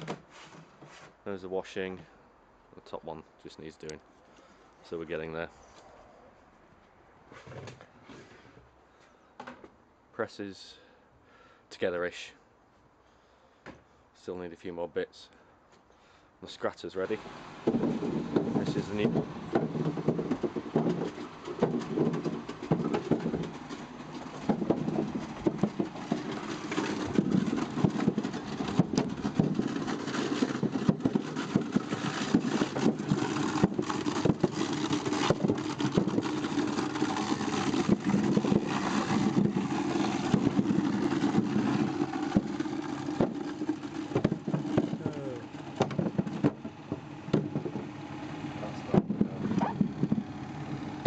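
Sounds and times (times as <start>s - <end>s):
machine hum: 17.1s - 51.0s
knocking and clatter: 17.6s - 47.9s.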